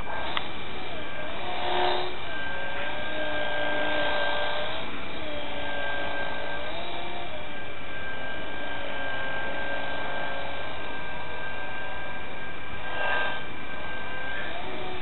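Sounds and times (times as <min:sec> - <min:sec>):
small electric motor and propeller whining: 0:00.0 - 0:15.0.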